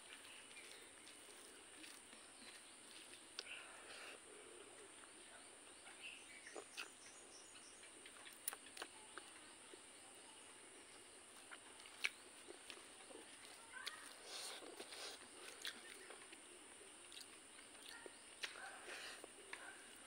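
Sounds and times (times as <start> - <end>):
mouth sounds while chewing: 0.1 - 5.2, 6.0 - 7.2, 7.8 - 9.8, 11.4 - 20.0
eating by hand clicks and smacks: 6.4 - 7.0, 7.8 - 9.4, 11.4 - 19.7.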